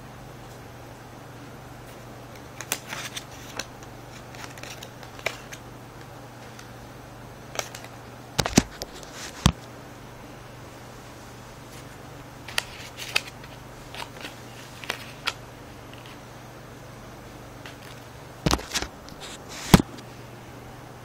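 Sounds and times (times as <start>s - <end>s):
steady low hum: 0.0s - 21.0s
playing cards clicking and snapping: 2.4s - 5.6s, 7.5s - 9.6s, 12.5s - 16.2s, 17.6s - 20.0s.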